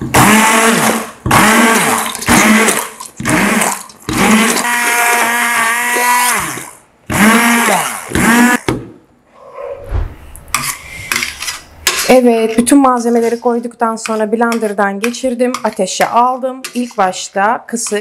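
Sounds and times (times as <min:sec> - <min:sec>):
stick blender motor whine: 0:00.2 - 0:08.6.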